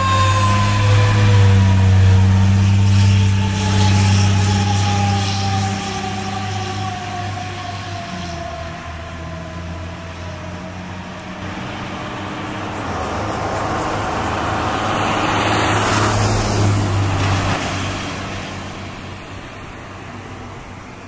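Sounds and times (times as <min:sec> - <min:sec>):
fire engine engine hum: 0:00.0 - 0:21.0
car passing close by: 0:07.8 - 0:21.0.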